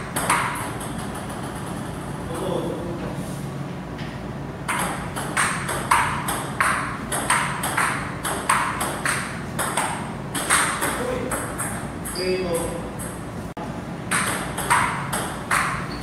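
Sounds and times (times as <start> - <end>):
steady low hum: 0.0 - 16.0
table tennis ball clicking: 4.7 - 13.2, 14.1 - 16.0.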